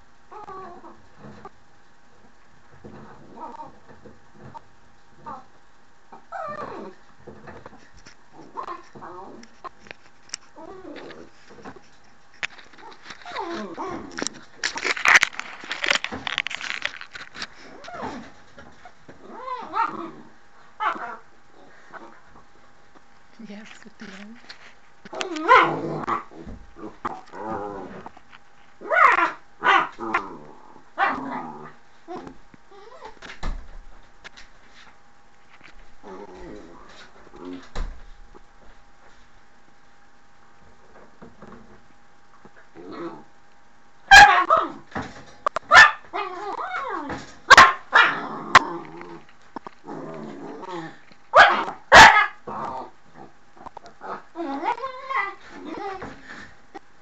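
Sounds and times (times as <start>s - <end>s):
dog growling: 0.3s - 1.5s, 2.8s - 4.6s, 5.2s - 9.9s, 10.5s - 12.0s, 12.6s - 22.5s, 24.0s - 28.2s, 28.8s - 33.3s, 36.0s - 37.7s, 42.6s - 43.3s, 46.1s - 56.6s
dog barking: 25.4s - 25.8s, 28.8s - 30.0s, 44.1s - 44.7s, 45.7s - 46.1s, 47.5s - 48.2s, 51.3s - 52.4s.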